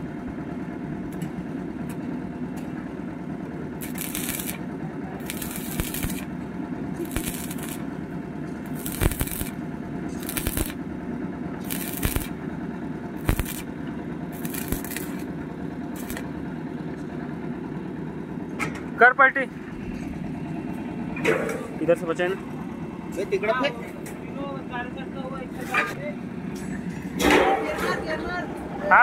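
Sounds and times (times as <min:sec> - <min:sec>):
steady low hum: 0:00.0 - 0:29.0
welding arc crackling and sizzling: 0:03.8 - 0:10.8, 0:11.6 - 0:12.4, 0:13.1 - 0:16.3
sharp cracks: 0:05.2 - 0:06.3, 0:07.0 - 0:07.8, 0:08.7 - 0:09.6, 0:10.2 - 0:10.8, 0:11.7 - 0:12.4, 0:13.2 - 0:13.7, 0:14.4 - 0:15.3, 0:16.0 - 0:16.2.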